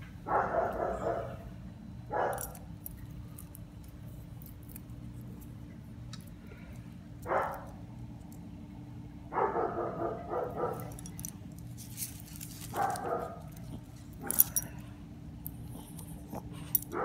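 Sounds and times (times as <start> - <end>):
small dog barking: 0.3 - 1.4, 2.1 - 2.6, 7.2 - 7.7, 9.3 - 11.0, 12.7 - 14.6.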